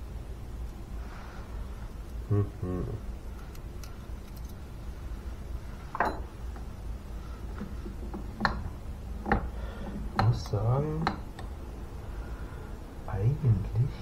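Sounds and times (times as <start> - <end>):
metal tools clinking: 5.9 - 6.3.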